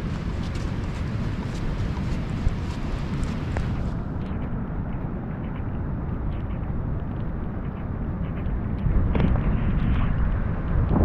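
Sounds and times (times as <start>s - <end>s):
heavy rain: 0.0s - 4.0s
wind rumble: 0.0s - 11.0s.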